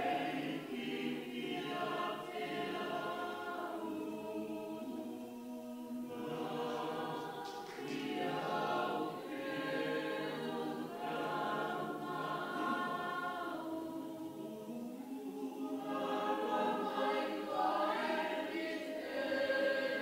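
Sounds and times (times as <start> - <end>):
congregation singing a hymn: 0.0 - 20.0.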